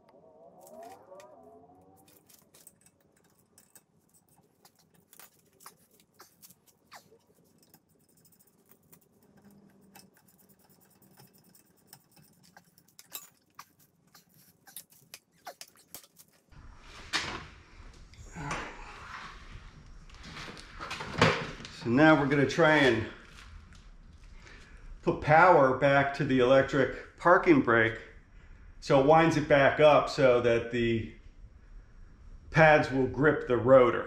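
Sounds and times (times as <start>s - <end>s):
rustling scrape: 2.0s - 17.5s.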